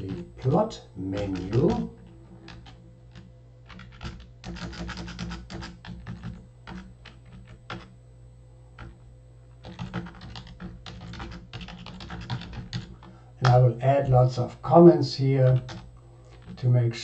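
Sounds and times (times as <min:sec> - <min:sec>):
typing on keyboard: 0:00.0 - 0:07.9, 0:08.8 - 0:09.0, 0:09.6 - 0:13.6, 0:15.5 - 0:16.6.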